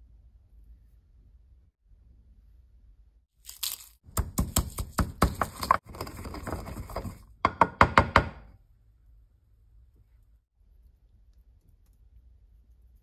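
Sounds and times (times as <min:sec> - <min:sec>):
pestle grinding and crushing: 0:03.5 - 0:08.2
pestle pounding in wooden mortar: 0:04.1 - 0:08.5.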